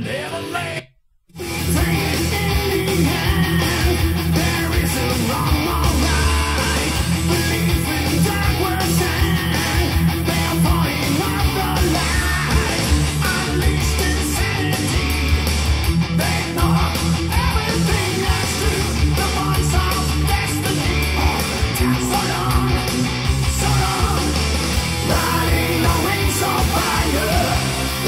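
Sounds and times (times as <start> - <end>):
heavy metal song: 1.4 - 28.0.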